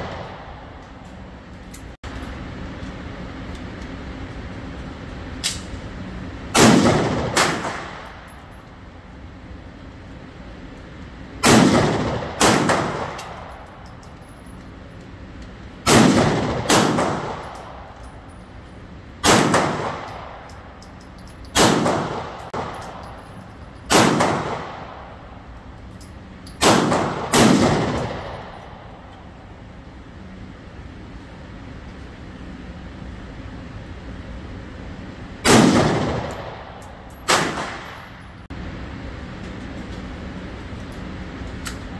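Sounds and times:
rifle shots echoing indoors: 6.5 - 8.2, 11.4 - 13.6, 15.8 - 17.9, 19.2 - 20.4, 21.5 - 22.8, 23.9 - 25.1, 26.6 - 28.9, 35.4 - 38.0.

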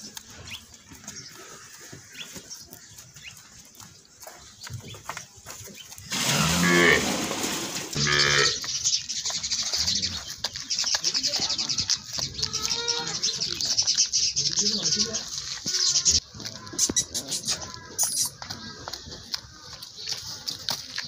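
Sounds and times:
cattle mooing: 6.1 - 7.2, 8.0 - 8.6.

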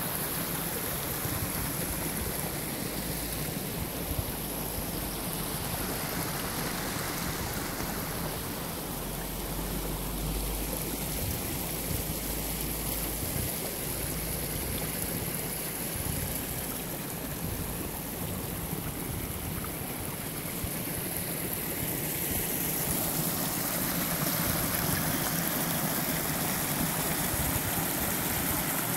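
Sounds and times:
stream rushing: 0.0 - 28.9.

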